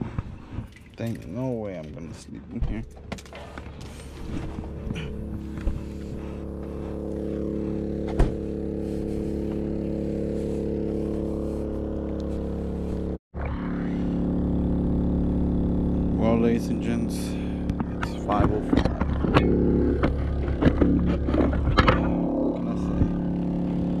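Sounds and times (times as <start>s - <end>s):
generator droning: 0.0s - 24.0s
car door shutting: 8.0s - 8.5s.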